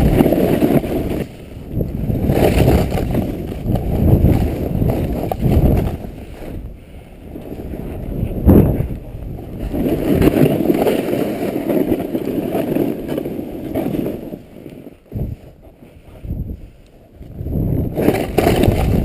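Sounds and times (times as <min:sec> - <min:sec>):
snowboard carving through snow: 0:00.0 - 0:19.0
wind on microphone: 0:00.0 - 0:19.0.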